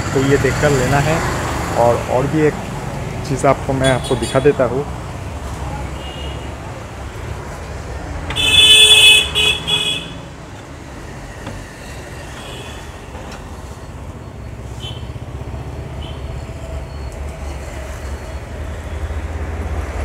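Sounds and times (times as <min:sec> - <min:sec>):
road traffic rumble: 0:00.0 - 0:20.0
vehicle horn honking: 0:08.3 - 0:10.2.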